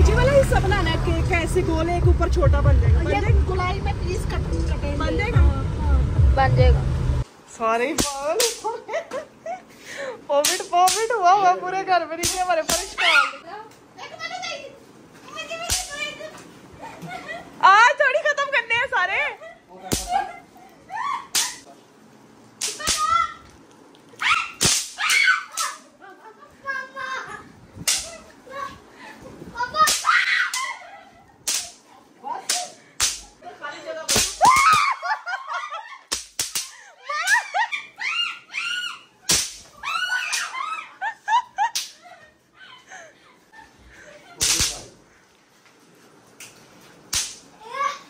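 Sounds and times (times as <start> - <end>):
excited squeals and laughter: 12.9 - 13.4, 19.1 - 21.7, 24.2 - 27.5, 28.2 - 31.4, 34.4 - 36.1, 36.7 - 44.4
bang snaps cracking: 24.6 - 25.8, 31.5 - 31.8, 32.5 - 33.4, 36.1 - 37.4, 39.3 - 40.5, 44.4 - 44.9, 47.1 - 47.5
bang snaps cracking on stone: 39.3 - 39.7, 47.1 - 47.5.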